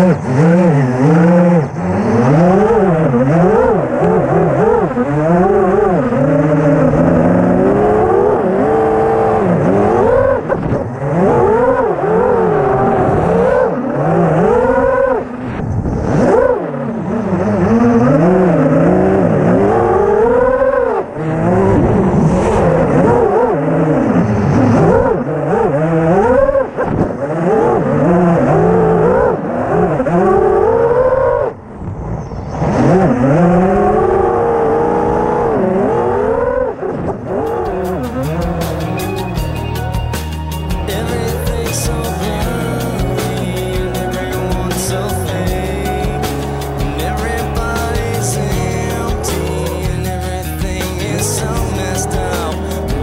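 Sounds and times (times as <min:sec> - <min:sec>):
drone motors whining: 0:00.0 - 0:53.0.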